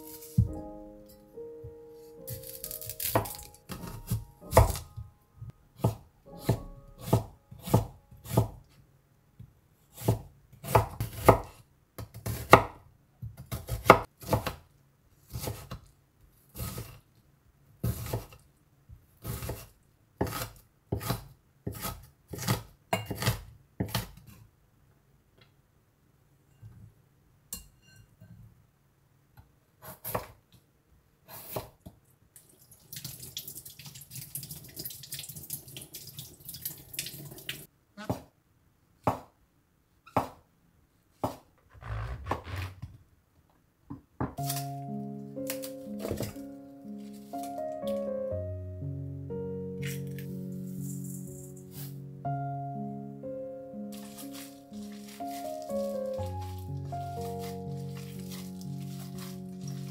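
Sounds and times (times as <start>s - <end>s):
knife chopping on wooden board: 2.3s - 4.9s, 5.8s - 8.6s, 10.0s - 14.6s, 15.3s - 15.8s, 17.8s - 18.4s, 19.2s - 24.2s, 41.2s - 41.5s, 45.5s - 46.4s
kitchen tap running: 32.5s - 37.7s.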